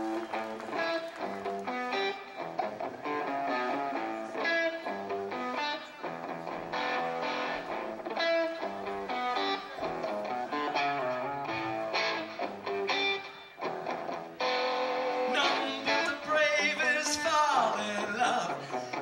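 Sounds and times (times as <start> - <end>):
electric guitar picked chords: 0.0 - 19.0.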